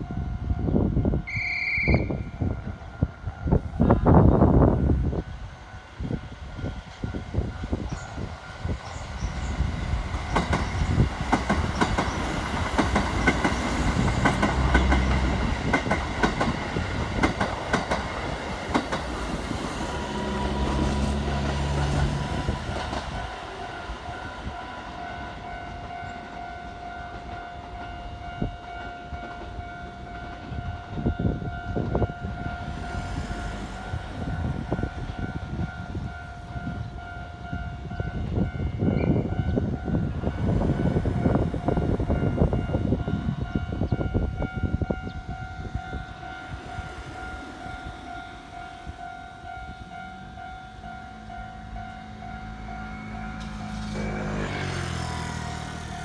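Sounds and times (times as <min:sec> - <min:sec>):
train wheels clattering over joints: 0:10.0 - 0:19.6.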